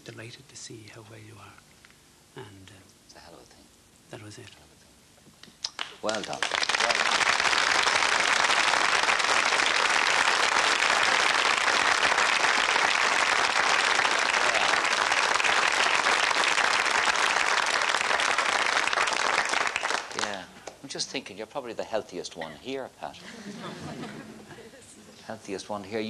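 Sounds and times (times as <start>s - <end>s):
audience applauding: 5.6s - 20.4s.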